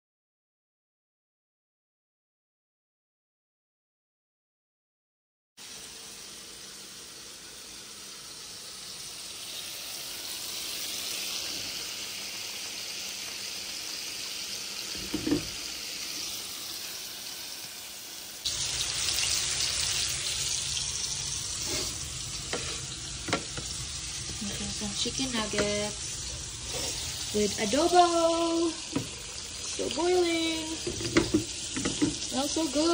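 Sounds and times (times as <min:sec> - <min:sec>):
chicken sizzling in oil: 0:05.6 - 0:32.9
knock: 0:15.0 - 0:15.5.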